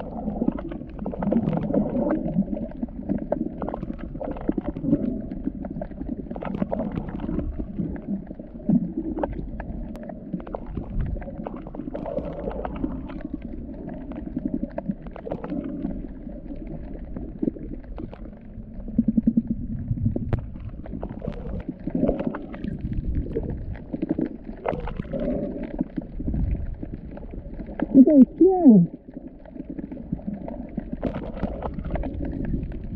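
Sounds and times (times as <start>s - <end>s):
underwater clicks and crackles: 0.0s - 32.9s
underwater rumbling and gurgling: 0.0s - 32.9s.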